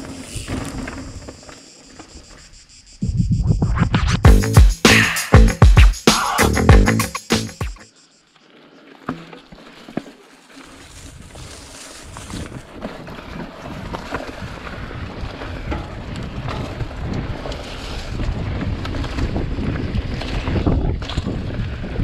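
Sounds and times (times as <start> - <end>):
bike tyres rumbling over trail: 0.0 - 2.4, 8.5 - 22.0
wind rushing over microphone: 3.0 - 4.3, 13.6 - 22.0.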